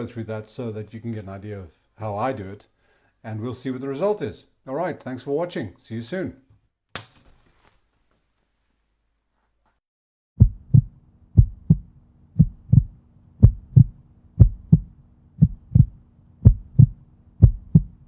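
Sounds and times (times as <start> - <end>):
faint low hum: 10.4 - 18.0
low sharp thumps: 10.4 - 18.0.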